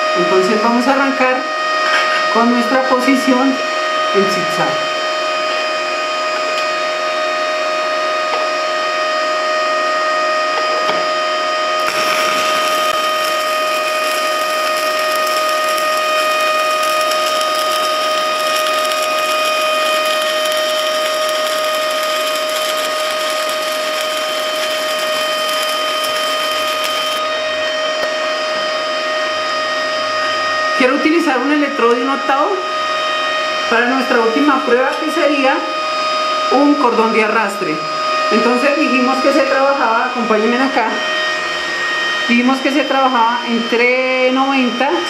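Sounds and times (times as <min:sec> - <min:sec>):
steady hum with whining tones: 0:00.0 - 0:45.0
welding arc crackling: 0:11.8 - 0:27.3.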